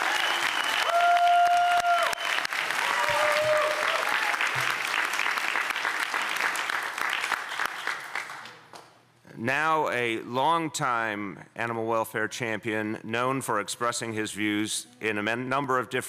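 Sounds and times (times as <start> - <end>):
voices cheering: 0.0 - 4.7
crowd applauding: 0.0 - 8.8.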